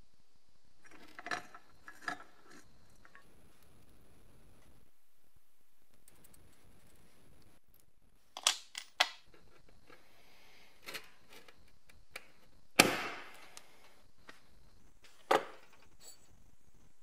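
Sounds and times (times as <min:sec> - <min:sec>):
sharp clicks of metal parts: 0:08.4 - 0:09.6.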